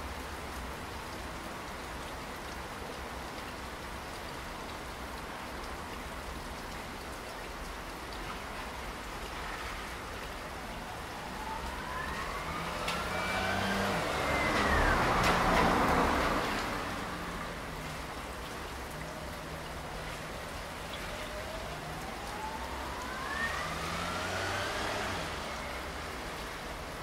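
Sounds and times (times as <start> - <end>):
steady rain falling: 0.0 - 27.0
vehicle passing: 11.2 - 18.3, 21.4 - 26.4.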